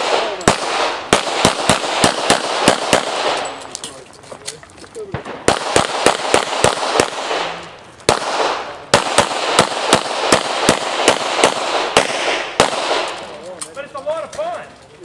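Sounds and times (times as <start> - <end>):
rapid pistol shots: 0.0 - 3.6, 5.1 - 13.2.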